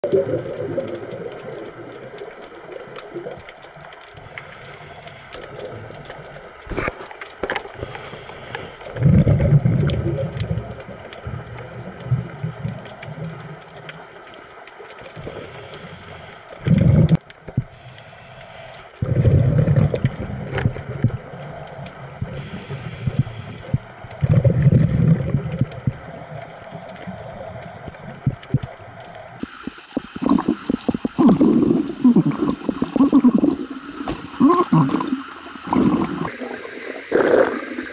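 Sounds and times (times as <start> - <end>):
faint clicks: 0.0 - 37.9
regulator hissing inhalations: 4.2 - 5.5, 7.8 - 8.9, 15.2 - 16.5, 17.7 - 19.0, 22.3 - 23.9, 29.4 - 37.9
bubbling exhaled air: 7.8 - 10.7, 15.2 - 21.5, 22.1 - 26.2, 29.4 - 37.9.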